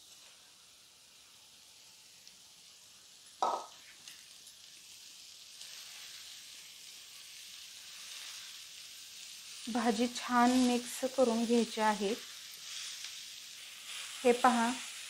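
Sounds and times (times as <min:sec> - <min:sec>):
leaves sizzling in hot oil: 0:00.0 - 0:15.0
knock: 0:03.4 - 0:03.7.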